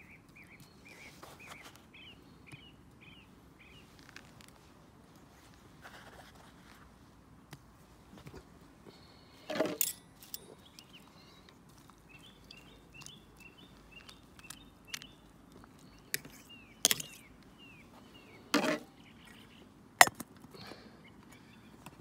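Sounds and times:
small bird chirping: 10.3 - 19.7.

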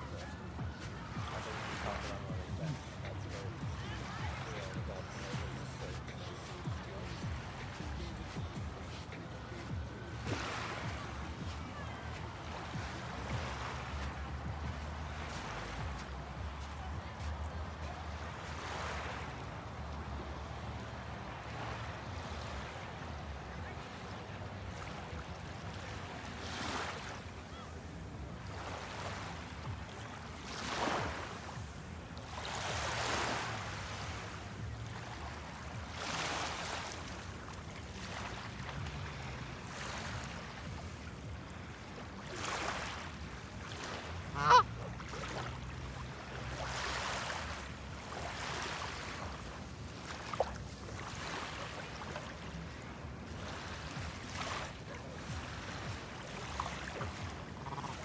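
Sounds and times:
small waves washing onto sand: 0.0 - 58.0
goose honking: 44.3 - 44.7.

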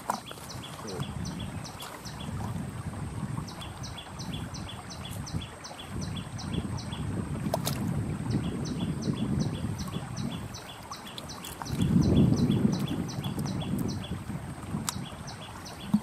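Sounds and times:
wind rumbling on microphone: 0.0 - 16.0.

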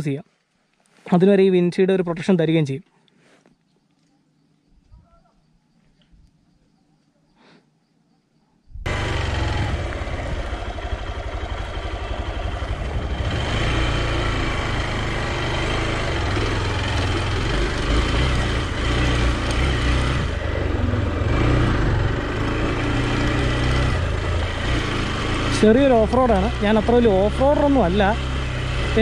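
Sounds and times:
motorcycle engine running at low speed: 8.7 - 29.0.

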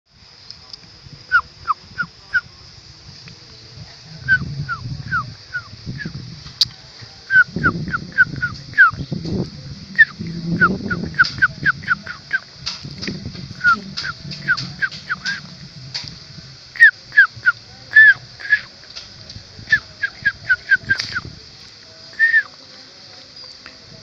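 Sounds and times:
low rumbling noise: 0.1 - 23.0
insect drone: 0.1 - 24.0
bird calling: 4.2 - 9.3, 9.9 - 12.5, 13.5 - 16.1, 16.7 - 18.7, 19.7 - 21.3, 22.1 - 22.5.

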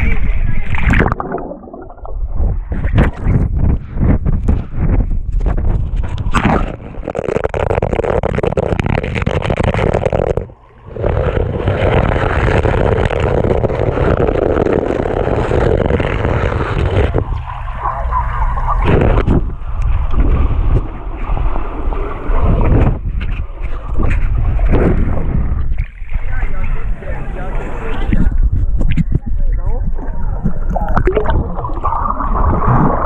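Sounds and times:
swimmers kicking underwater: 0.0 - 17.6, 30.3 - 33.0
underwater rush of water and bubbles: 0.0 - 27.0, 29.8 - 33.0.

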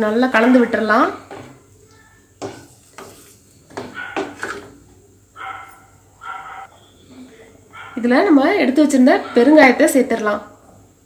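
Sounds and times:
wooden spatula stirring in pot: 0.0 - 5.0
spatula knocking metal pot: 0.4 - 1.7, 2.4 - 4.8.

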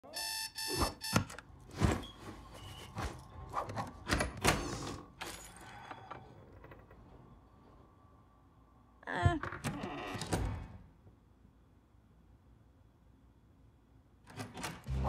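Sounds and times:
digital alarm clock beeping: 0.1 - 1.3.

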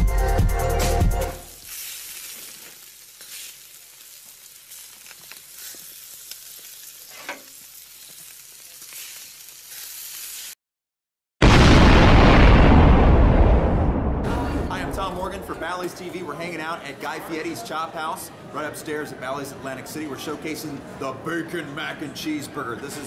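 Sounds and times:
grill sizzling hiss: 1.2 - 10.6
crackles: 1.5 - 10.6.

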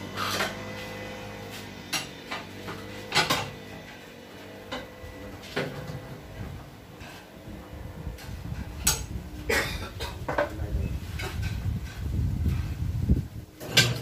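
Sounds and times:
faint machine hum: 0.0 - 14.0.

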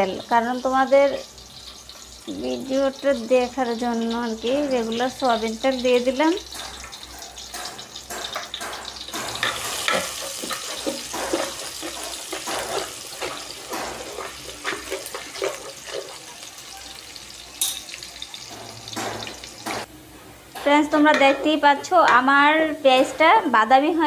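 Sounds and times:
paste sizzling in oil: 0.0 - 19.9
spoon scraping and tapping pot: 5.9 - 16.4, 17.6 - 19.9, 20.6 - 22.2.

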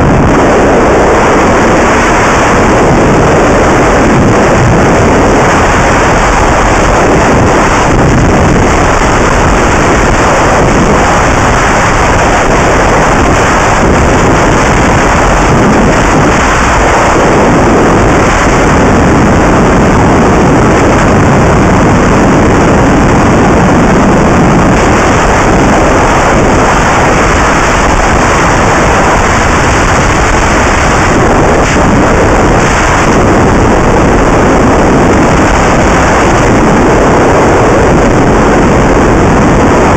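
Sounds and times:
distorted wind roar on microphone: 0.0 - 39.9.

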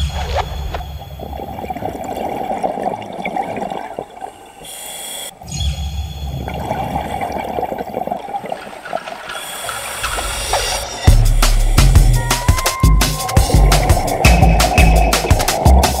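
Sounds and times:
regulator inhale hissing: 4.3 - 5.4, 9.3 - 12.3
regulator exhalation bubbling: 6.5 - 16.0.

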